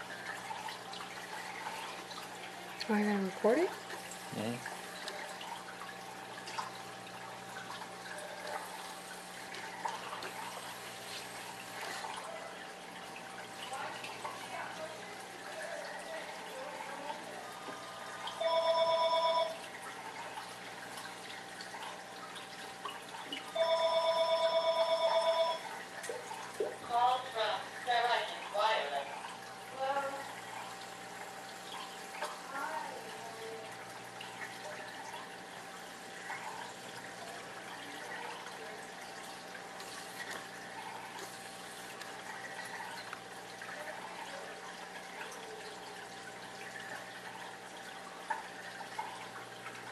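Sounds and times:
aquarium water trickling: 0.0 - 49.9
telephone ringing: 18.4 - 19.7, 23.5 - 25.8.

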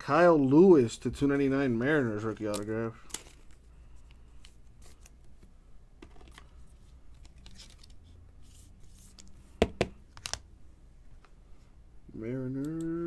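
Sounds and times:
cards rustling and sliding: 2.4 - 10.4.

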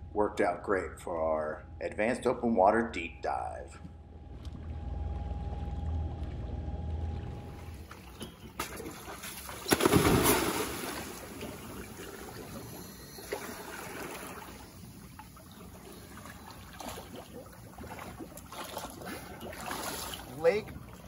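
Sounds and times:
quiet water sounds: 0.0 - 21.0
loud splash into water: 8.6 - 11.5.

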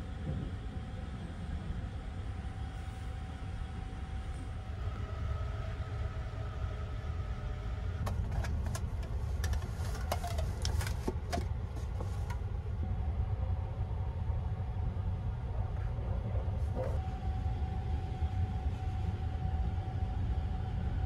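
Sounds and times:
train rumble: 0.0 - 21.0
sharp clicks and knocks: 8.0 - 12.4.

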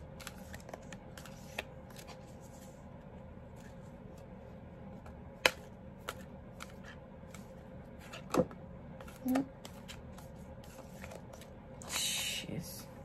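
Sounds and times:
cards shuffling: 0.0 - 2.8, 5.4 - 8.2.

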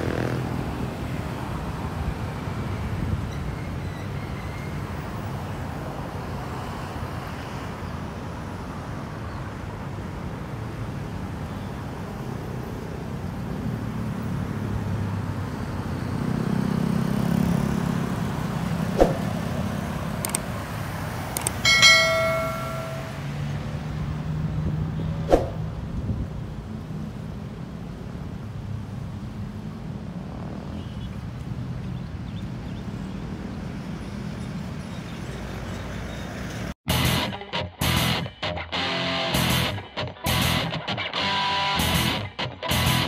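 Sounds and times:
road traffic rumble: 0.0 - 43.0
sharp clicks: 20.2 - 20.5, 21.3 - 21.6
loud ringing tone: 21.6 - 23.3.

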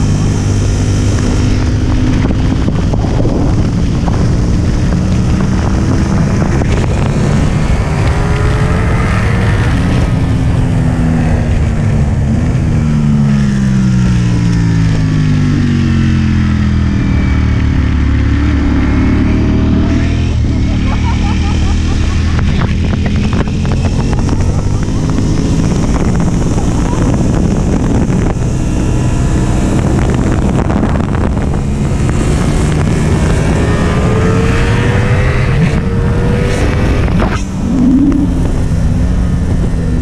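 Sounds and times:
motorcycle engine at speed: 0.0 - 40.0
low rush of noise: 37.0 - 40.0.

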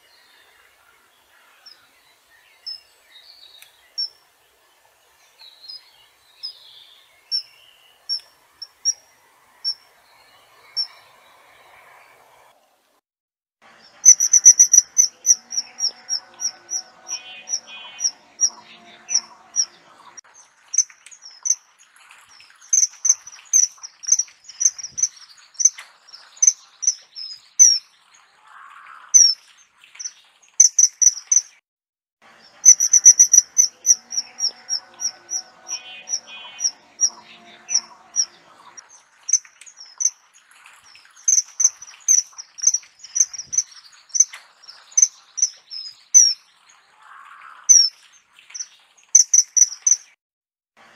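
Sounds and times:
birds chirping: 5.1 - 12.5, 13.8 - 31.5, 32.4 - 50.2
insects chirping: 14.0 - 18.5, 22.7 - 25.8, 30.6 - 31.4, 32.6 - 37.1, 39.3 - 40.2, 41.3 - 44.3, 49.1 - 50.0
kingfisher shrill whistled calls: 14.0 - 18.5, 32.6 - 38.3.

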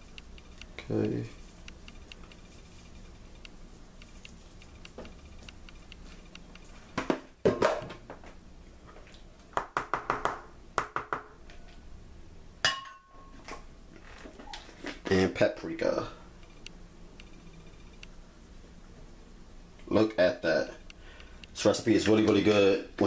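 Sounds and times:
dishes and utensils clinking: 12.6 - 13.5.

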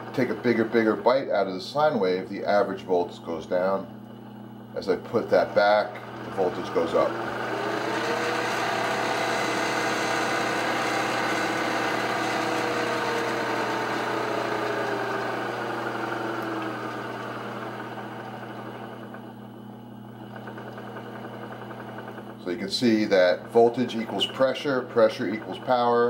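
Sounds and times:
sewing machine motor whine: 0.0 - 1.3, 4.8 - 26.0
steady low hum: 0.0 - 7.4.

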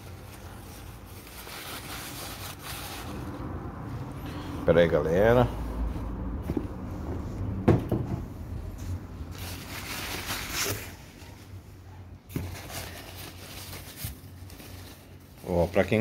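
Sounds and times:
paper wrapping rustling: 0.0 - 3.6, 8.8 - 16.0.

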